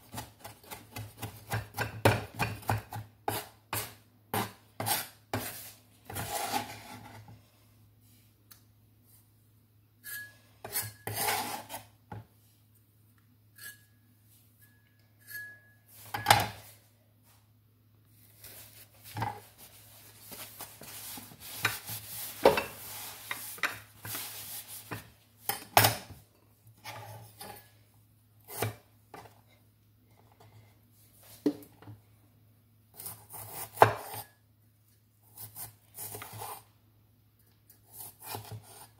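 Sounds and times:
knife scraping across board: 3.3s - 7.3s, 10.0s - 11.9s, 37.9s - 38.9s.

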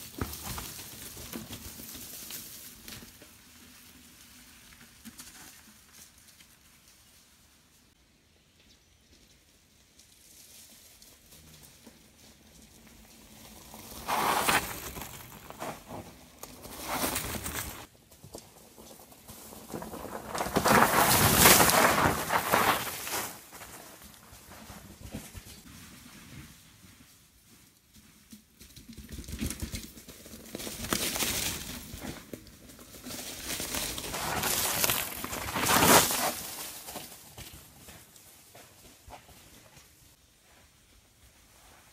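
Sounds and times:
bike tyres rolling over leaves: 0.0s - 7.9s, 9.1s - 40.2s
crackling leaves rush: 13.2s - 17.9s, 19.2s - 24.7s, 32.7s - 37.2s.

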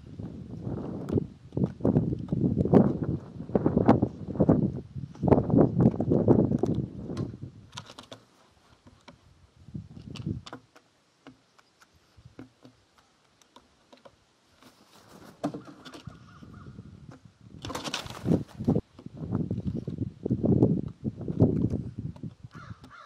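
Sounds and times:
beak tapping on wood: 10.0s - 14.2s, 20.6s - 23.0s
crow cawing: 22.5s - 23.0s.

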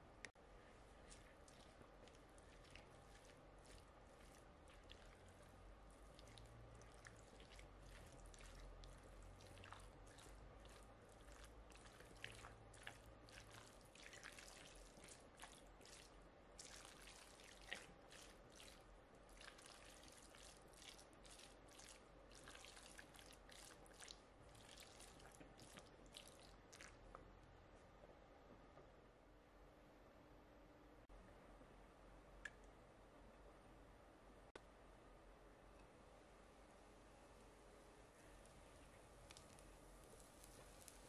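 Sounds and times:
wet squelching of food mixture: 0.3s - 27.3s, 38.2s - 41.0s.

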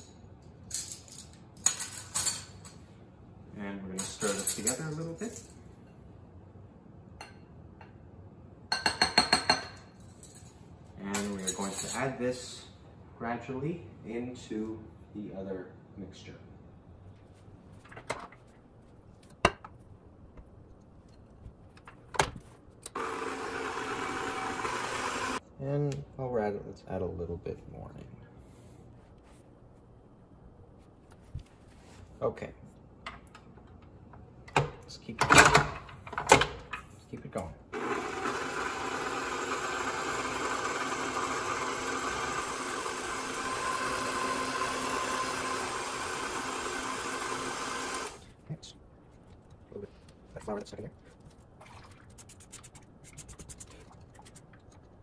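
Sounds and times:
stand mixer motor running: 23.0s - 25.4s, 37.8s - 48.2s.

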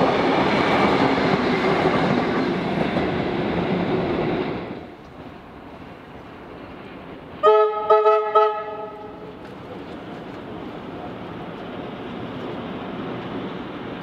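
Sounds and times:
train running noise: 0.0s - 14.0s
train horn toots: 7.4s - 9.3s.

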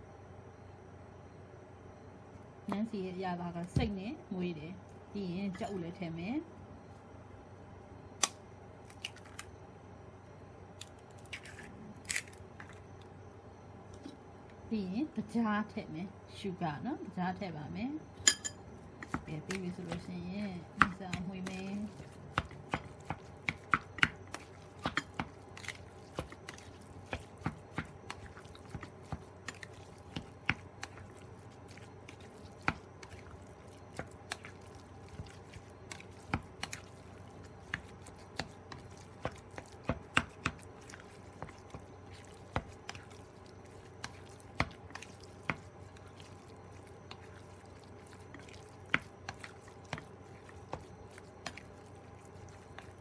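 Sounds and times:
plastic spoon stirring meat in bowl: 18.9s - 53.0s.

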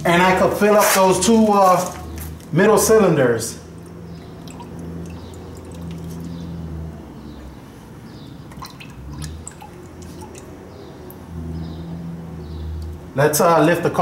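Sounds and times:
oil pouring and dripping: 3.6s - 7.0s, 8.2s - 13.1s.

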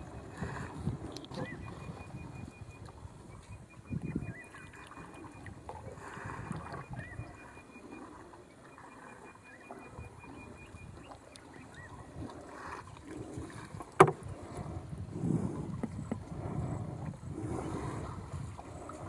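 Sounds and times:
paddle sloshing water: 0.0s - 19.0s
faint pulsing high tone: 1.3s - 12.2s.

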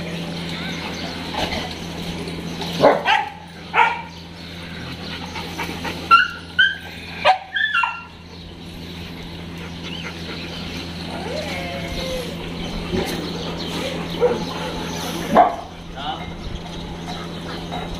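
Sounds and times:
dogs barking: 0.0s - 17.9s
dogs yipping: 0.2s - 17.9s.

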